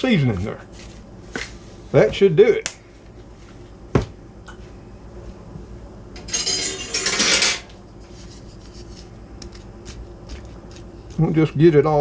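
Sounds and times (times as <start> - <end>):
kitchen utensils rattling: 6.2 - 7.7.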